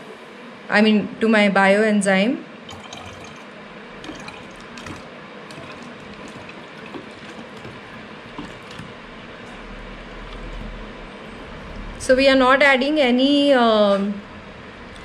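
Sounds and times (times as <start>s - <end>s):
liquid trickling into liquid: 2.6s - 9.6s.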